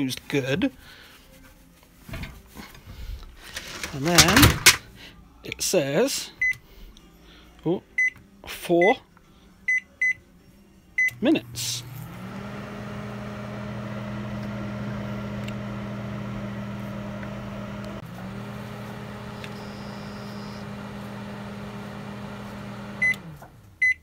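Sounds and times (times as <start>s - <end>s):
microwave oven humming: 11.0s - 23.9s.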